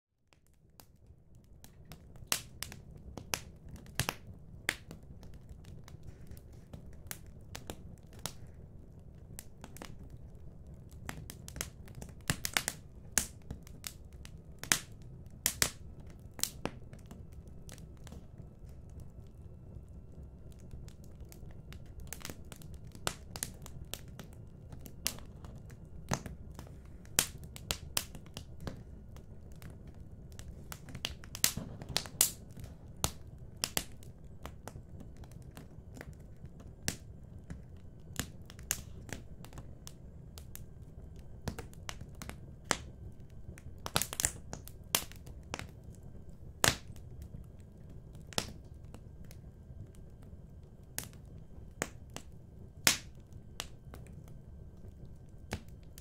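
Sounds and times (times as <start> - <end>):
wood fire crackling: 0.3 - 56.0
low steady rumble: 1.1 - 56.0.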